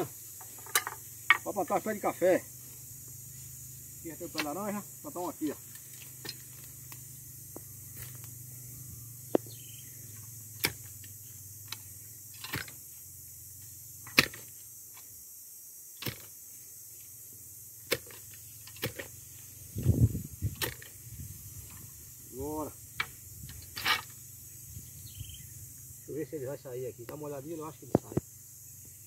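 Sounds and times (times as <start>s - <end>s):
post-hole digger thudding into soil: 10.5s - 11.0s, 12.4s - 12.8s, 14.0s - 14.6s, 16.0s - 16.4s, 17.8s - 19.2s, 19.8s - 21.0s.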